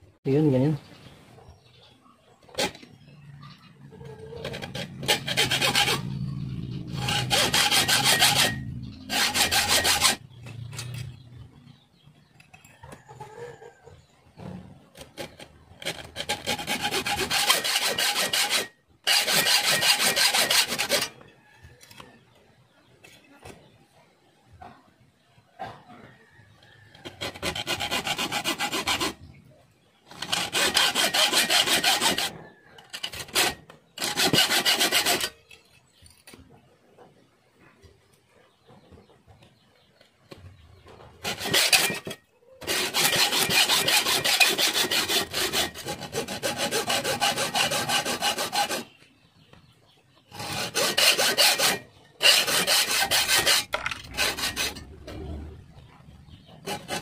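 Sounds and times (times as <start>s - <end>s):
hacksaw cutting metal tube: 2.5s - 3.0s, 4.3s - 11.2s, 15.0s - 21.2s, 26.9s - 29.2s, 30.1s - 35.6s, 41.2s - 49.0s, 50.3s - 55.5s, 56.3s - 57.0s.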